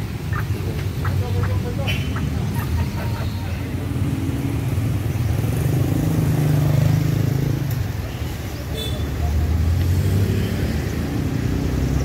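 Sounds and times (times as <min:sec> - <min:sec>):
vehicle engine hum passing: 0:00.0 - 0:08.5, 0:09.2 - 0:12.0
street traffic: 0:00.0 - 0:12.0.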